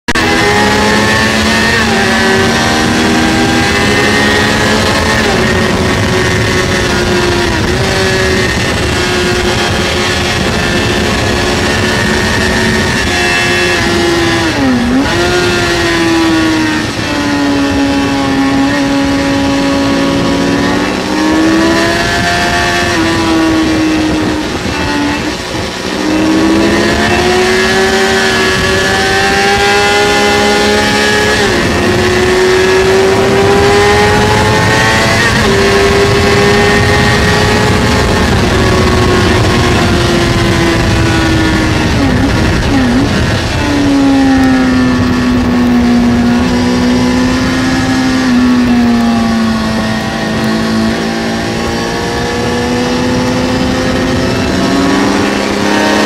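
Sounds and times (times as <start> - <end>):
motorcycle engine running hard: 0.0 - 56.0
wind rush: 0.1 - 56.0.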